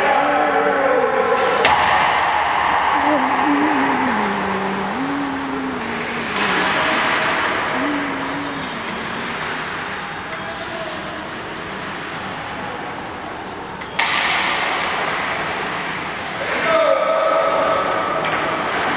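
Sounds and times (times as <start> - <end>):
players' voices calling: 2.8 - 10.0.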